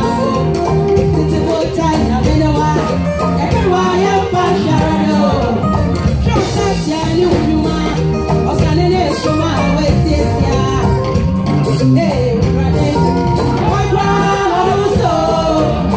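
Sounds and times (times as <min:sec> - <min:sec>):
instrumental accompaniment with beat: 0:00.0 - 0:15.9
lead vocalist singing: 0:00.0 - 0:15.9
gospel choir singing: 0:03.5 - 0:05.8, 0:12.9 - 0:15.9.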